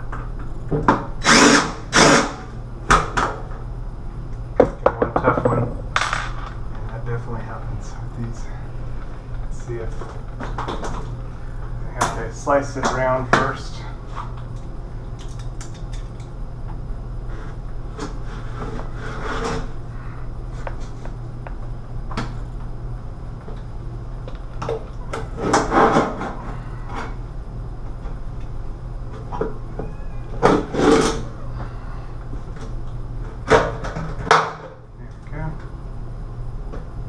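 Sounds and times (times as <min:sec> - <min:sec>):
low hum: 0:00.0 - 0:37.0
cabinet box scraping: 0:17.4 - 0:19.8.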